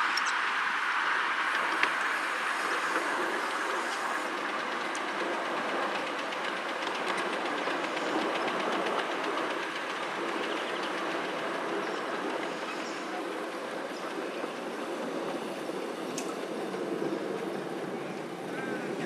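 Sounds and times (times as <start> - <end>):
train wheels rolling on rail: 0.0 - 19.0
rapid faint ticks: 1.5 - 13.1.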